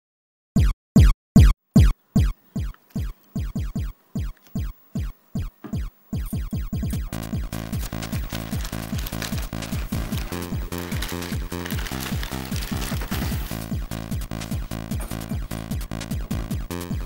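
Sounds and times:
deep kick drum: 0.6s - 7.6s, 13.2s - 17.0s
electronic dance music: 1.8s - 17.0s.

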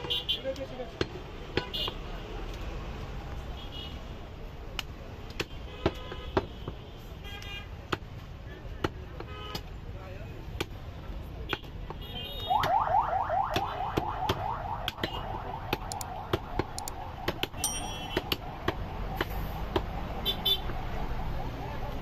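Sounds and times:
cleavers chopping meat and bone: 0.9s - 1.7s, 4.8s - 6.8s, 7.8s - 8.2s, 8.8s - 9.7s, 10.4s - 12.0s, 15.7s - 20.0s
electronic alarm whooping: 13.5s - 19.7s.

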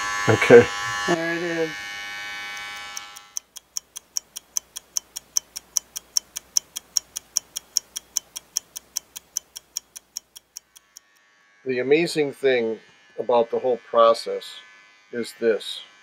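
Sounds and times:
clock ticking: 2.5s - 11.1s.

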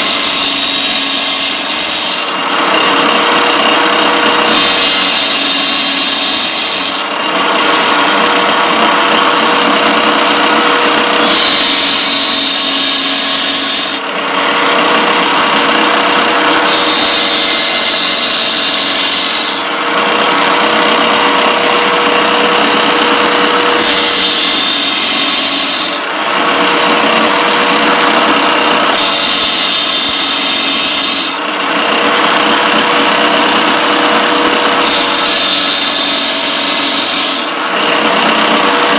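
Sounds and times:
harsh high grinding of saw teeth: 0.0s - 38.9s
tile cutter motor running: 0.0s - 38.9s.

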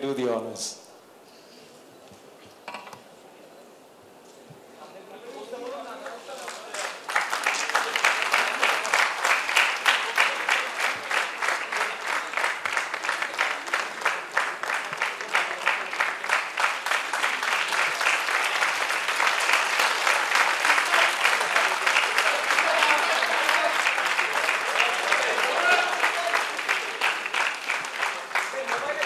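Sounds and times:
audience applauding: 5.9s - 29.0s.

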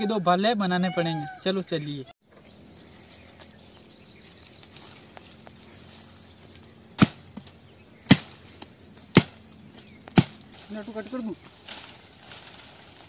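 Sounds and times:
faint outdoor background: 0.0s - 13.0s
blade chopping sapling: 6.6s - 10.7s.

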